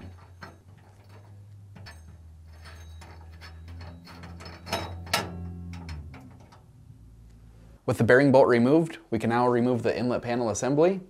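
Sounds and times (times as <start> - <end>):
wrench metal clicks and scrapes: 0.0 - 6.6
metal knocks: 0.0 - 7.0
low steady hum: 0.0 - 10.0.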